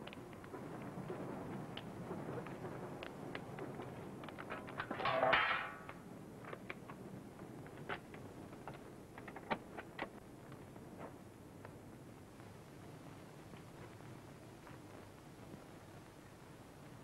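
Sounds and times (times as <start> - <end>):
rattling clatter: 4.6 - 5.9.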